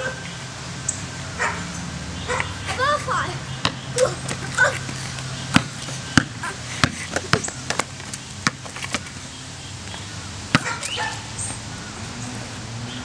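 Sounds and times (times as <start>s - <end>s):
basketball bouncing on concrete: 3.6s - 9.1s, 10.5s - 10.8s.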